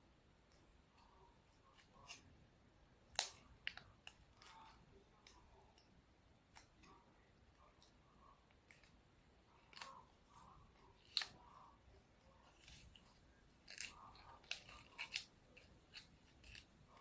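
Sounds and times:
paper crinkling: 12.4s - 17.0s.

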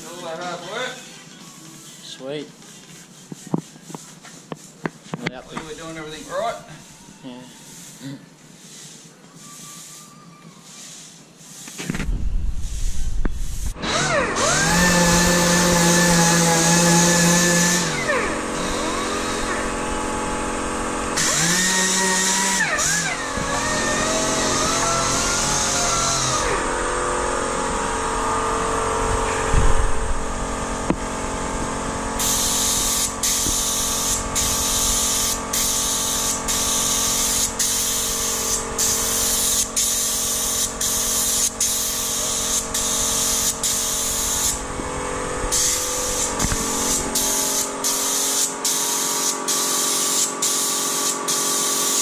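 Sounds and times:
spray gun hissing bursts: 5.8s - 28.0s, 32.0s - 52.0s
steady machine hum: 13.7s - 48.4s.

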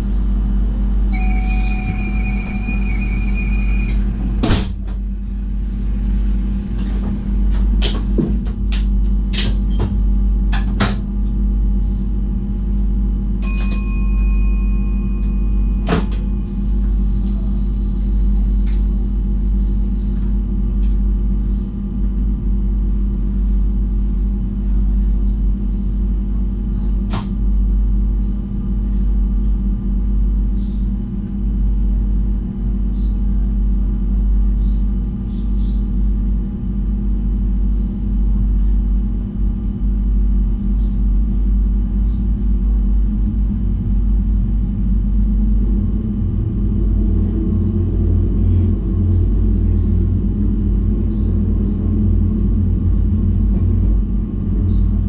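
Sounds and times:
train electrical hum: 0.0s - 55.0s
short high tone: 1.1s - 4.2s.

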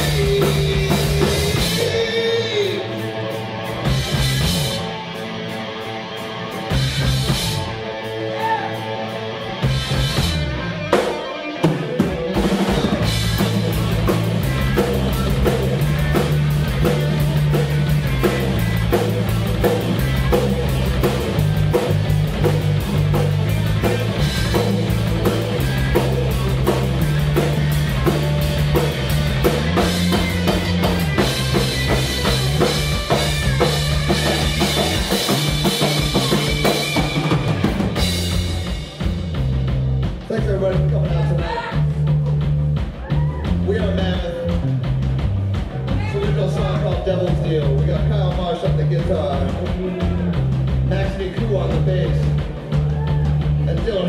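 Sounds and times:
electric guitar: 0.0s - 40.3s
bass guitar: 0.0s - 54.0s
drum kit: 0.0s - 54.0s.

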